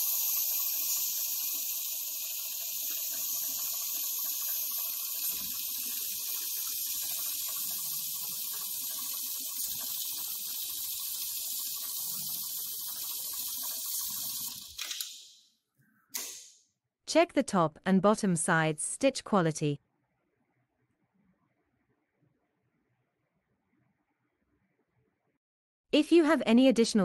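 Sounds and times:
sewing machine running: 0:00.0 - 0:14.8.

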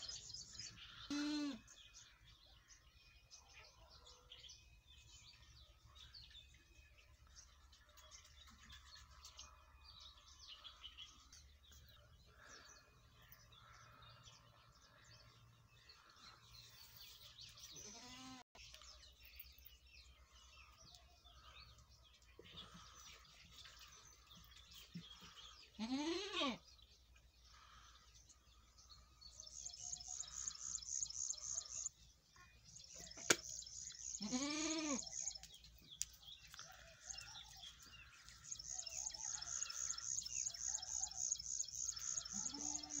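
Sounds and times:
goats bleating: 0:25.8 - 0:26.6, 0:34.2 - 0:35.0.

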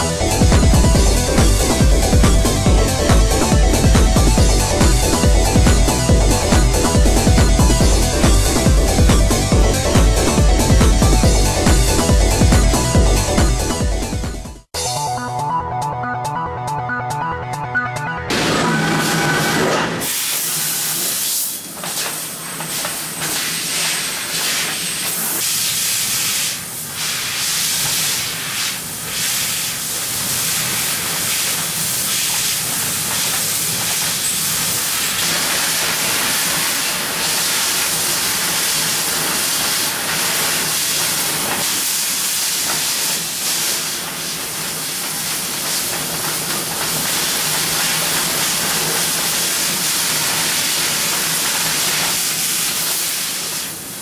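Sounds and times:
laser cutter gas jet hissing: 0:19.9 - 0:54.0.

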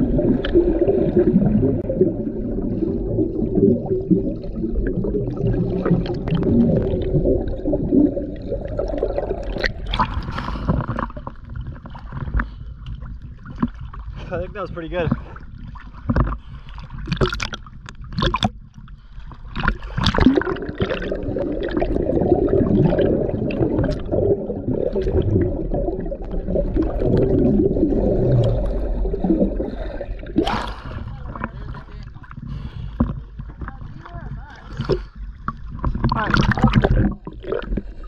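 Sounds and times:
muffled underwater gurgling: 0:00.0 - 0:38.0
water splashing over camera: 0:00.0 - 0:38.0.

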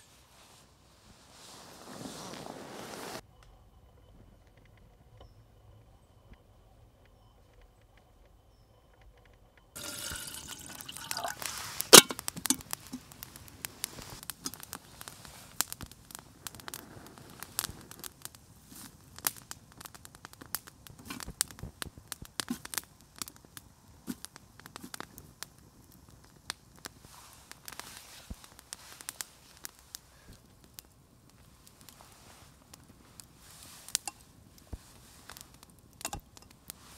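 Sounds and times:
campfire crackling and popping: 0:09.7 - 0:36.9.

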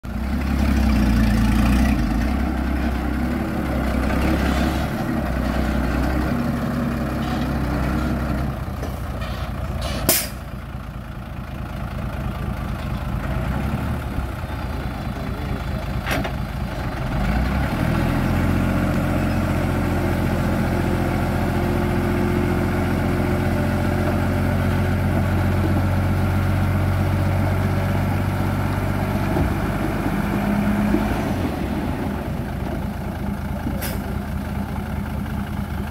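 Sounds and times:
diesel truck engine running: 0:00.0 - 0:35.9
short sharp hiss: 0:09.8 - 0:10.4.

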